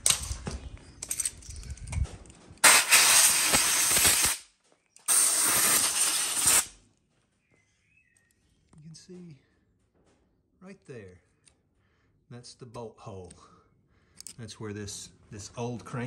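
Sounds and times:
compressed air blow gun hiss: 2.6 - 4.4, 5.1 - 6.7.

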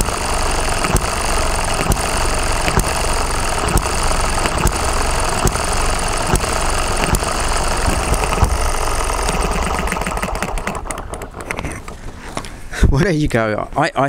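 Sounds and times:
small engine clattering and popping: 0.0 - 12.6.

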